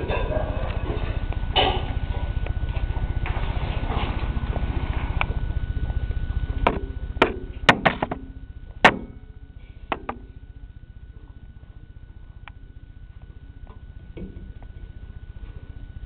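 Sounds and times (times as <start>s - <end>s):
low rumble: 0.0s - 16.0s
sharp knocks and clicks: 6.6s - 9.2s, 9.9s - 10.2s.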